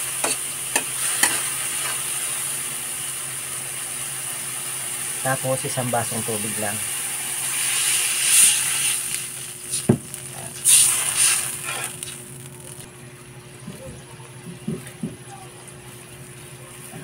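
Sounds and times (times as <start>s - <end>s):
water sizzling in a hot wok: 0.0s - 12.9s.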